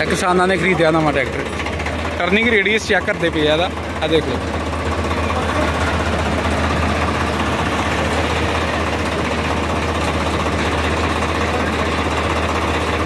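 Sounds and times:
tractor diesel engine idling: 0.0 - 13.0.

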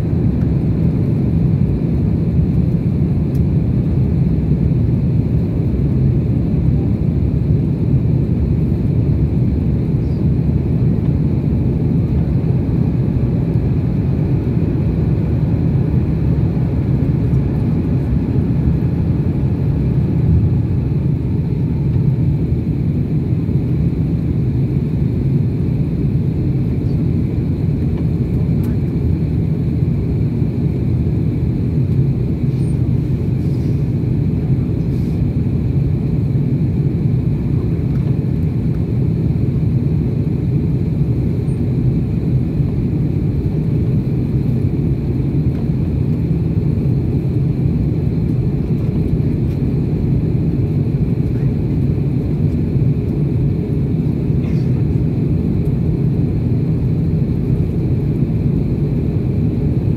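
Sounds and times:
jet engine cabin rumble: 0.0 - 59.9.

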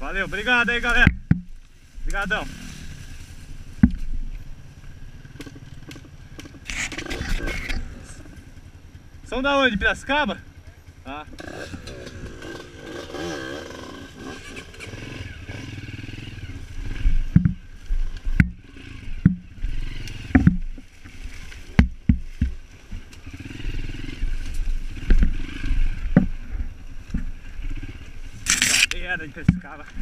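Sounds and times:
motorcycle jolting knocks and thumps: 0.0 - 2.4, 3.4 - 4.2, 16.8 - 30.0
motorcycle engine at low revs: 0.0 - 30.0.

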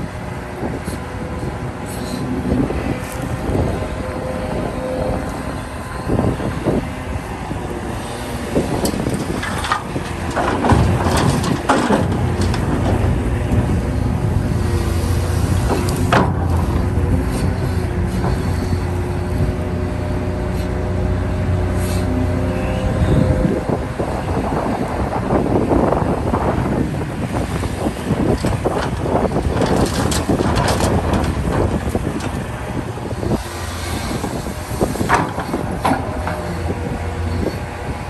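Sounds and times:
excavator diesel engine under load: 0.0 - 38.0
metallic clanks and knocks: 8.8 - 13.1, 15.6 - 17.0, 35.0 - 36.8.

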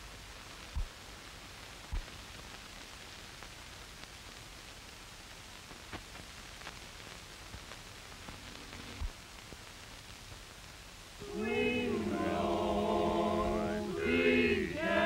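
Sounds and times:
film soundtrack hiss: 0.0 - 15.0.

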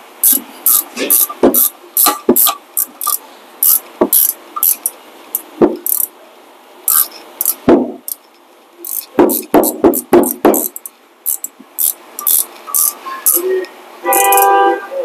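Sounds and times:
quick knocks: 7.6 - 8.1, 9.1 - 10.8.

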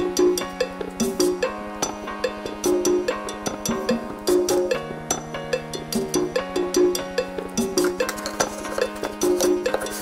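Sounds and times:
percussive background music: 0.0 - 10.0.

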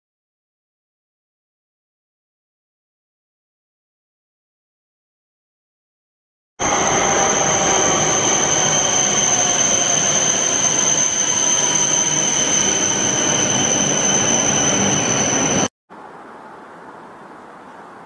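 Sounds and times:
high-pitched squeal: 6.6 - 15.7
train rushing into station: 6.6 - 15.7.

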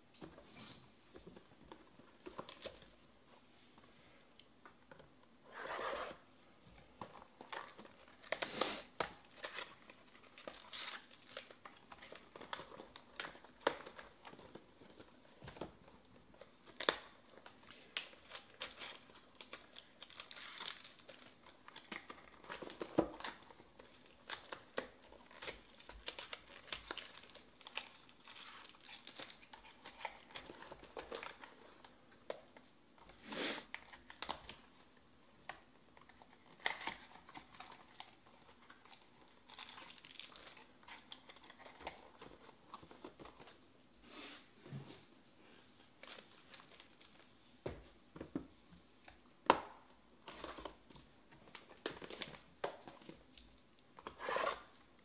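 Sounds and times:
foil wrappers crinkling and tearing: 7.4 - 14.6, 17.7 - 31.7, 36.4 - 42.4.

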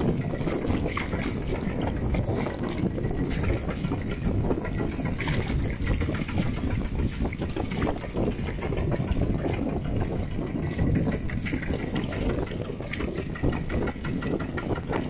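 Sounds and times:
tractor engine chugging: 7.6 - 15.0.

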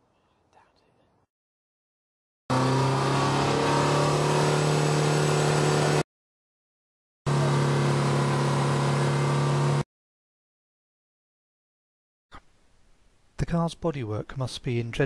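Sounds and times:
car exhaust at steady revs: 2.5 - 6.0, 7.3 - 9.8.

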